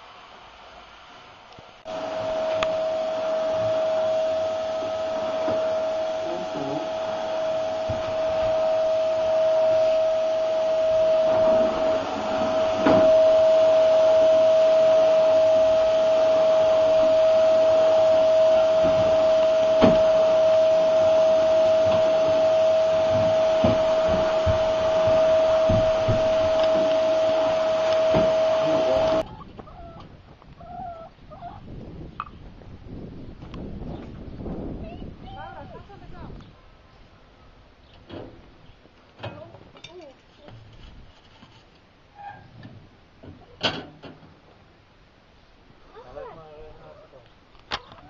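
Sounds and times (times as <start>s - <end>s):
vacuum cleaner running: 1.9s - 29.2s
sharp knocks: 21.8s - 27.1s.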